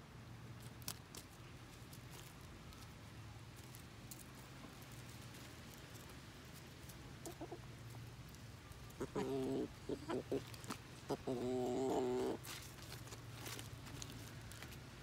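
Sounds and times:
chicken calling: 7.2s - 7.6s, 8.9s - 12.6s
chicken clucking: 7.2s - 7.7s, 8.9s - 12.4s.

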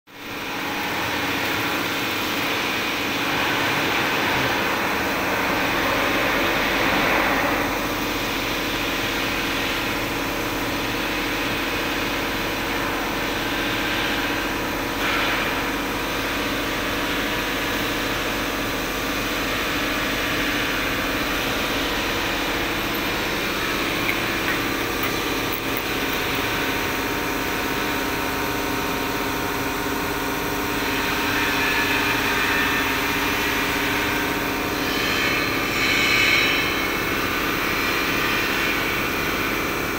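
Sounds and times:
boring machine cutting metal: 19.4s - 29.3s.

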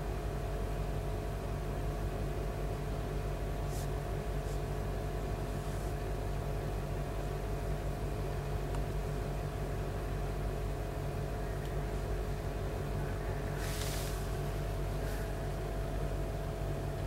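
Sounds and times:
low appliance hum: 0.0s - 17.0s
short soft hiss: 13.6s - 14.3s.

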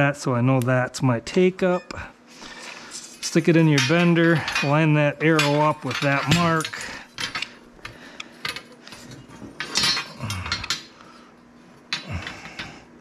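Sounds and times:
metal conduit clinking and scraping: 2.8s - 7.5s.

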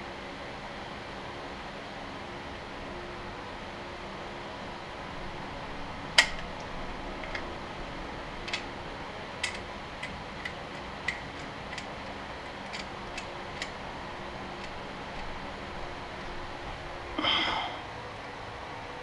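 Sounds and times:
sharp metal clicks and clinks: 8.4s - 8.7s, 9.4s - 13.8s.

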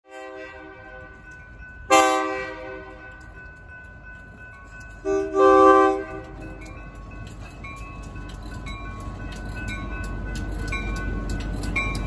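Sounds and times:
locomotive air horn blasts: 0.1s - 1.2s, 1.9s - 3.0s, 5.0s - 6.6s.

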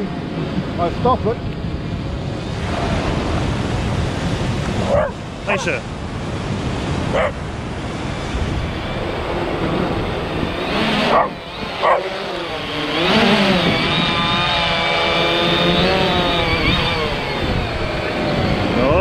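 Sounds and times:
drone propellers whining: 0.0s - 19.0s
wind: 0.0s - 19.0s
small dog barking: 4.8s - 5.2s, 7.1s - 7.4s, 11.1s - 12.1s.

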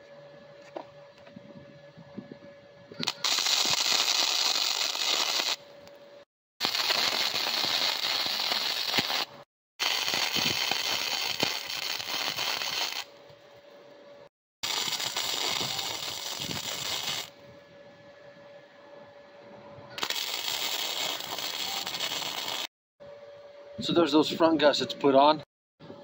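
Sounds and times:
welder arc crackling: 3.0s - 5.6s, 6.6s - 13.1s, 14.6s - 17.3s, 20.0s - 22.7s.

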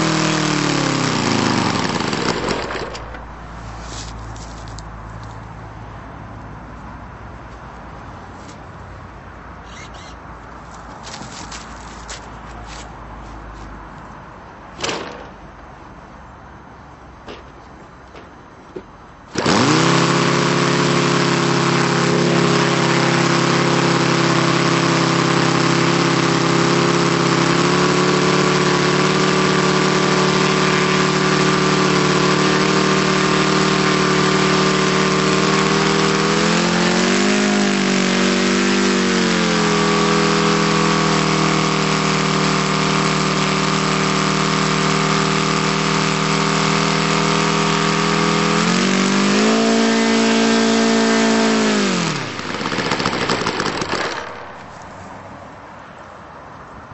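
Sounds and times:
model aircraft engine running: 0.0s - 3.2s, 19.3s - 54.4s.

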